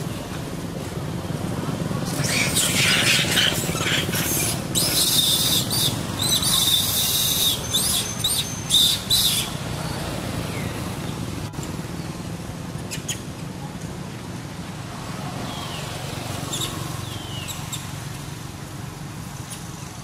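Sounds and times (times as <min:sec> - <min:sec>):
macaques squealing and screeching: 0:02.0 - 0:09.6.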